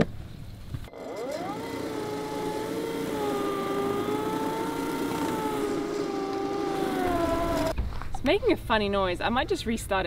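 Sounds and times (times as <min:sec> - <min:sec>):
lawn mower motor whine: 0:00.8 - 0:07.8.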